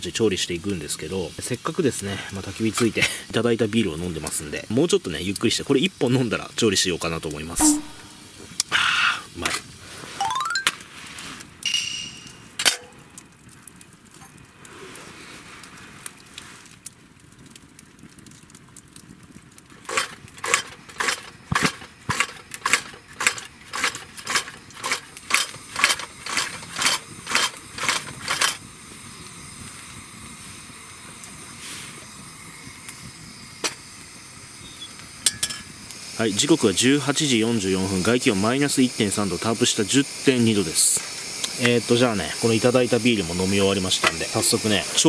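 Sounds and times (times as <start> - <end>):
steady lantern hiss: 0.0 - 16.9, 18.5 - 45.0
campfire crackling: 0.0 - 45.0
lantern hand pump strokes: 19.8 - 28.7.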